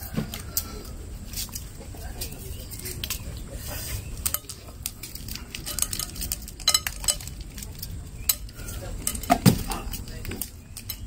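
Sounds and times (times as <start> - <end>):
paper wrappers rustling: 0.0 - 11.0
mints clinking on glass: 4.2 - 11.0.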